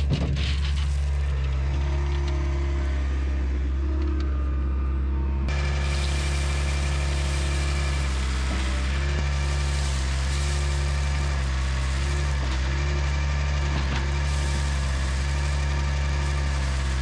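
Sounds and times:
loader engine humming: 0.0 - 17.0
gravel spilling from bucket: 5.5 - 17.0.

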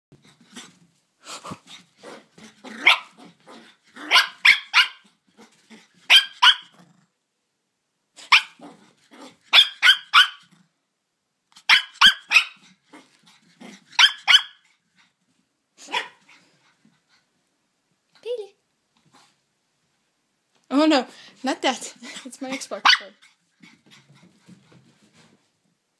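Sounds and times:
puppy barking: 2.8 - 3.2, 4.1 - 5.0, 6.1 - 6.7, 8.2 - 8.6, 9.5 - 10.5, 11.6 - 12.6, 14.0 - 14.6, 15.8 - 16.2, 22.8 - 23.2.

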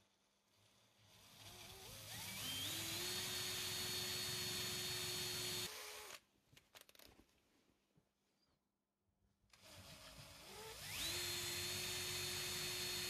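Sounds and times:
cordless drill whining: 0.5 - 6.2, 9.5 - 13.0.

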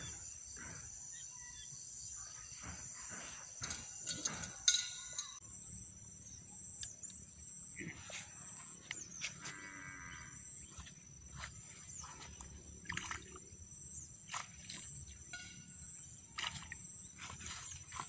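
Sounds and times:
light splashes: 11.7 - 13.5, 14.2 - 15.6, 16.3 - 18.0.

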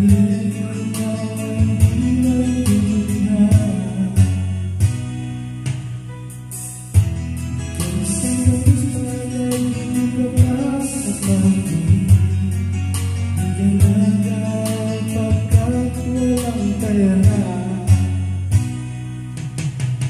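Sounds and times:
person singing into microphone: 0.0 - 4.8, 7.8 - 18.3
karaoke backing track with guitar: 0.0 - 20.0.

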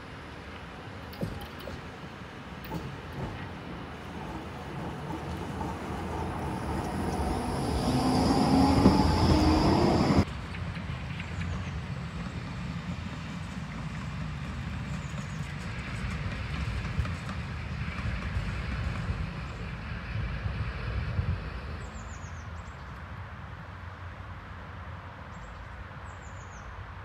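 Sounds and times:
tram rumbling on rails: 0.0 - 22.7
tram motor whine: 2.2 - 10.3.

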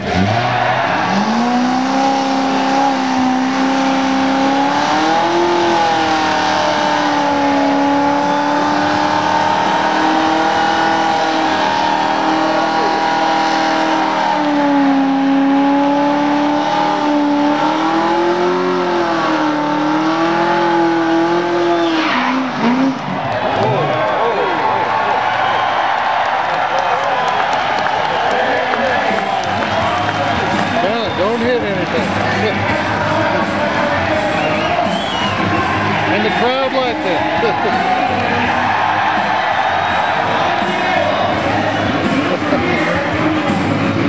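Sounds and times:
car engine revving high: 0.0 - 24.2.

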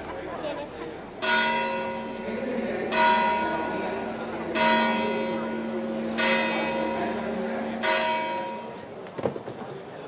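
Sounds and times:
church bell tolling: 1.2 - 9.0.

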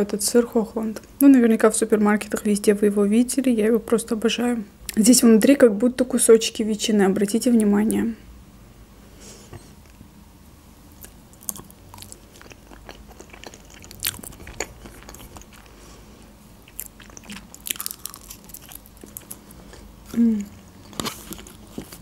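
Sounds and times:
mouth clicks and chewing: 11.0 - 15.8, 16.6 - 22.0.

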